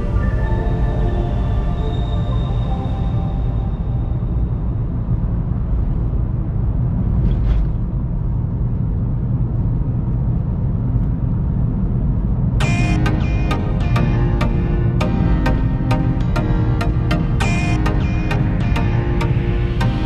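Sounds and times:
car interior road rumble: 4.2s - 20.0s
music with bright struck notes: 12.6s - 20.0s.

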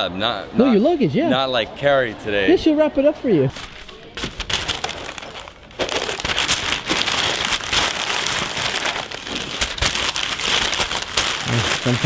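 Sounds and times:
newspaper crumpling and rustling: 3.5s - 12.0s.

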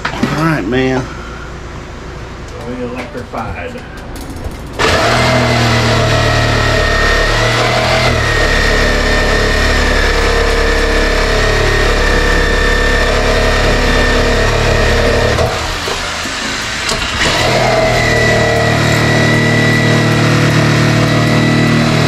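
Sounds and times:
power tool cutting into siding: 4.8s - 22.0s.

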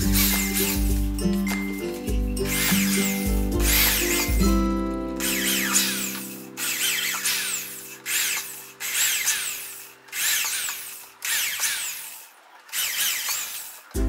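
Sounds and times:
electric drill boring into wood: 0.0s - 14.0s.

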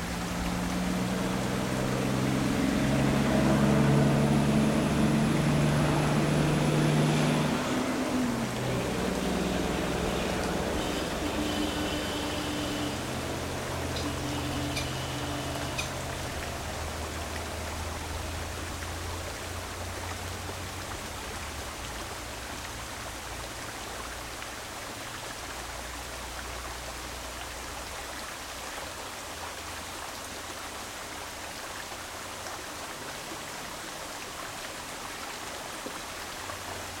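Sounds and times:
water rushing over stones: 0.0s - 37.0s.

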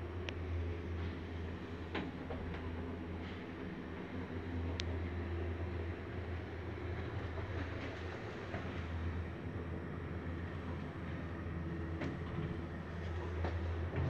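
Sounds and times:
lift hum and rumble: 0.0s - 14.0s
faint clicks: 4.7s - 4.9s.

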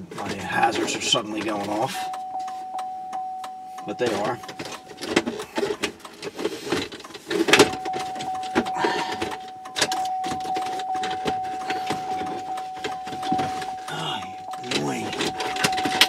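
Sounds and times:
high-pitched electronic tone: 7.7s - 16.0s.

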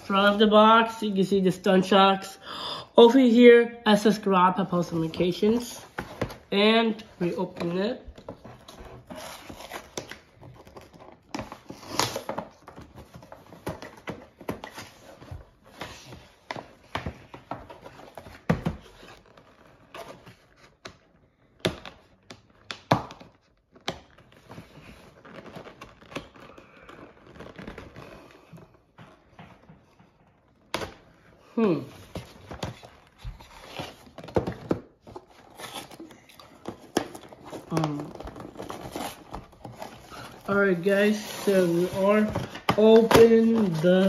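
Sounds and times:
plastic packaging crinkling and tearing: 22.0s - 28.7s, 31.9s - 44.0s.

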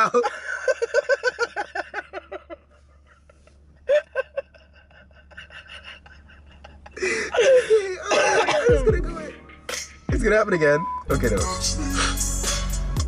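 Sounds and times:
people laughing: 0.0s - 9.3s.

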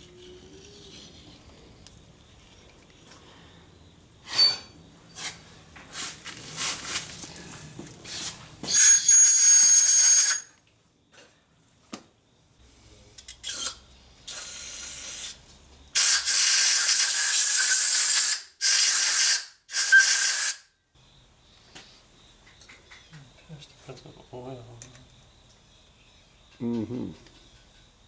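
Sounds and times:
compressed air blow gun blast: 16.0s - 20.6s.

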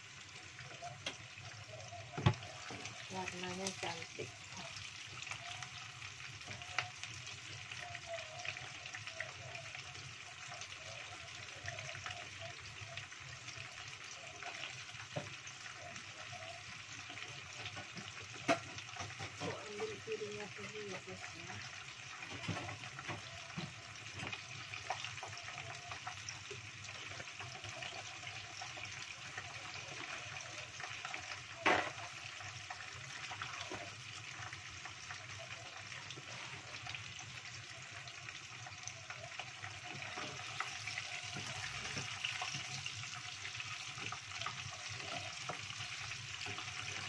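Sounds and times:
food sizzling in hot oil: 0.0s - 47.0s.

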